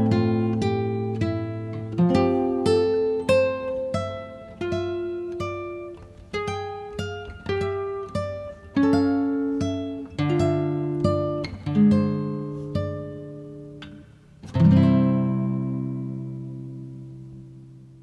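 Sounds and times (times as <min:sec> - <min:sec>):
acoustic guitar picking: 0:00.0 - 0:18.0.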